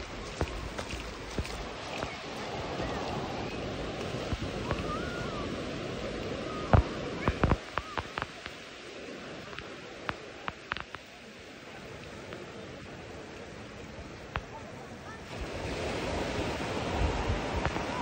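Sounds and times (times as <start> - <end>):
surf at water's edge: 0.0 - 18.0
wind: 0.0 - 18.0.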